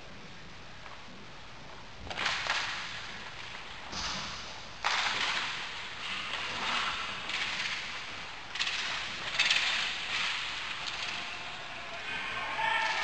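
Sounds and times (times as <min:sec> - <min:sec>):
hockey sticks knocking puck: 0:04.8 - 0:11.4.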